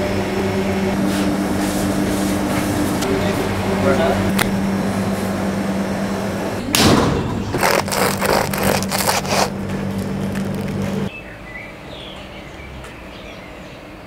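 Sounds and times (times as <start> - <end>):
low machine hum: 0.0 - 11.2
bread crust crackling under knife: 7.6 - 10.9.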